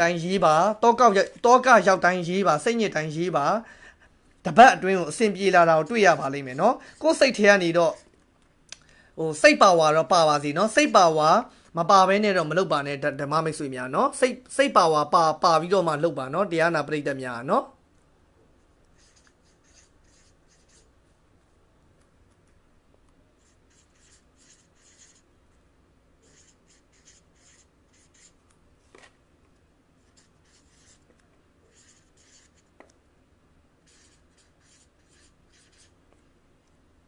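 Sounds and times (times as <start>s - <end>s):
marker pen scratching on paper: 5.8s - 8.1s, 18.9s - 21.0s, 23.4s - 25.3s, 26.2s - 29.1s, 30.0s - 32.9s, 33.8s - 36.0s.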